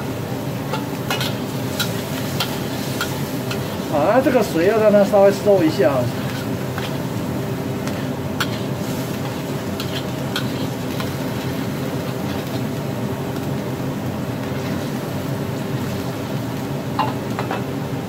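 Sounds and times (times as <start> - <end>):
meat sizzling: 0.0 - 17.8
constant low hum: 0.0 - 18.0
metal spatula scraping a wok: 6.1 - 7.0, 7.8 - 11.1.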